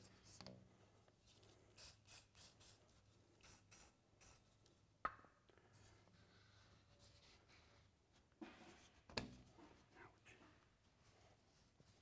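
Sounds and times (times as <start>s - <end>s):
aerosol can spraying: 1.8s - 2.8s, 3.4s - 4.4s.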